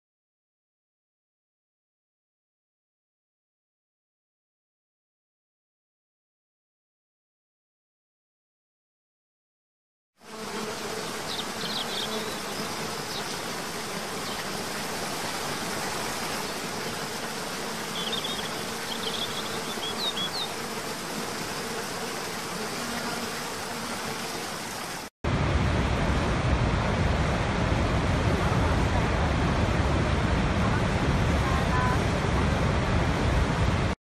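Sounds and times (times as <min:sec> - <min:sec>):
insect buzz: 0:10.2 - 0:25.1.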